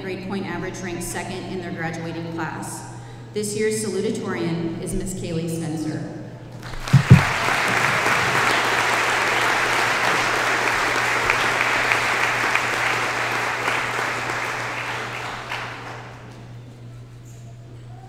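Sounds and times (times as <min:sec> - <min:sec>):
audience applauding: 0:06.6 - 0:16.6
dull thumps: 0:06.8 - 0:07.5.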